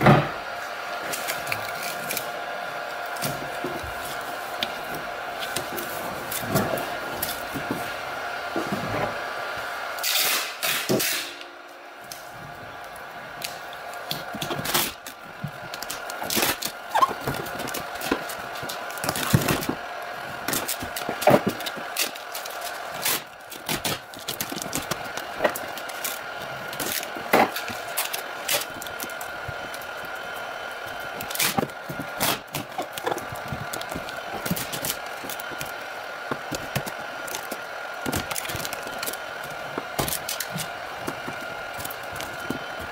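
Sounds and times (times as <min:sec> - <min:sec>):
steady background hum: 0:00.0 - 0:42.9
foil tape crinkling and ripping: 0:01.0 - 0:02.3, 0:12.9 - 0:42.9.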